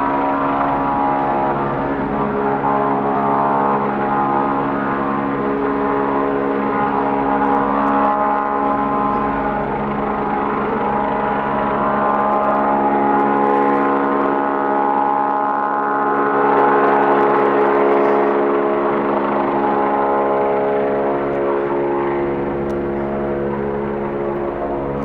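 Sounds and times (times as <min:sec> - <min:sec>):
helicopter rotor hum: 0:00.0 - 0:25.0.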